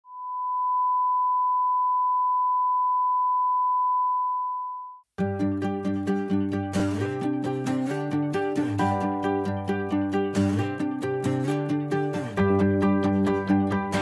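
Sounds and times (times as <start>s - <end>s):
instrumental music with plucked strings: 5.2s - 14.0s.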